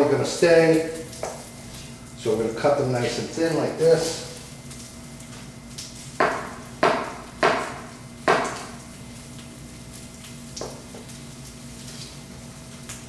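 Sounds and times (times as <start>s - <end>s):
food frying in a pan: 0.0s - 13.0s
knife chopping on plastic board: 6.2s - 8.7s.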